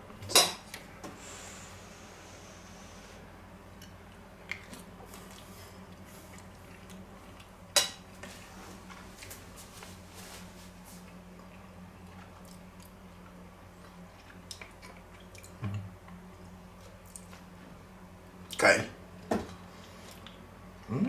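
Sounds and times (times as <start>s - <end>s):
steady low hum: 0.0s - 21.0s
person chewing: 13.8s - 15.8s.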